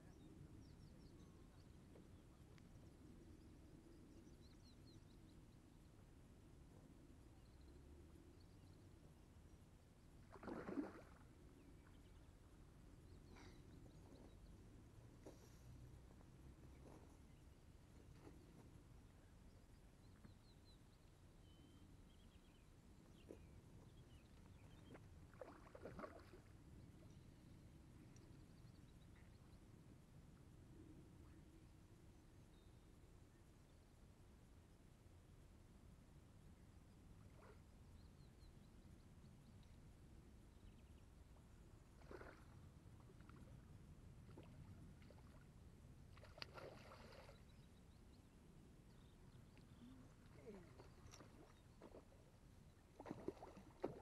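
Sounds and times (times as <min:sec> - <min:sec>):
faint bird chirps: 0:07.4 - 0:29.9, 0:46.2 - 0:54.0
fish splashing at surface: 0:10.3 - 0:11.2
fish splashing in water: 0:10.3 - 0:11.2, 0:25.3 - 0:26.5, 0:42.0 - 0:42.6, 0:46.1 - 0:47.4, 0:52.9 - 0:54.0.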